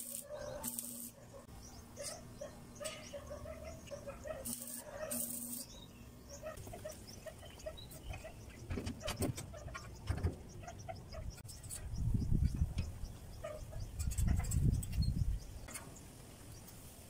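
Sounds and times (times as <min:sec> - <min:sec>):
metal frame knocks and clanks: 0:08.1 - 0:11.3.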